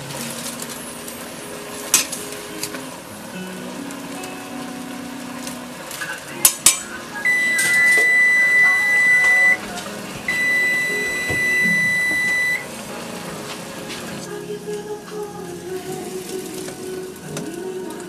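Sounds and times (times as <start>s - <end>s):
appliance timer beeping: 5.3s - 12.7s.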